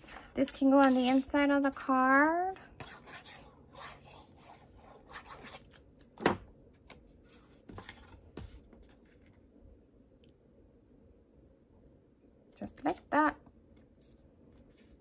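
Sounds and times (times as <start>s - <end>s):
card rubbing on paper: 0.8s - 1.4s, 2.8s - 5.6s.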